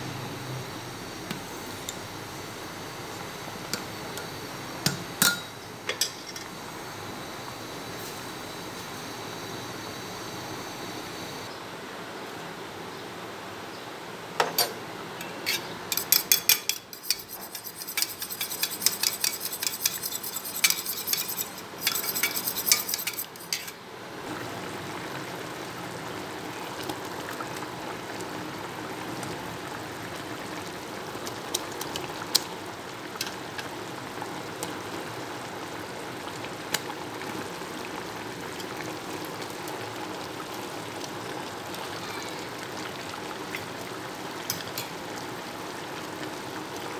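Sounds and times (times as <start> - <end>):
pot of food sizzling: 0.0 - 11.5, 15.3 - 46.9
metal spoon scraping steel bowl: 15.4 - 23.8.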